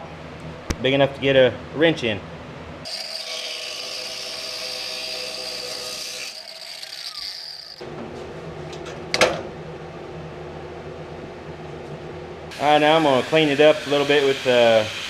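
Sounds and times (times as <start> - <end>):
angle grinder cutting steel: 2.8 - 7.8, 12.5 - 15.0.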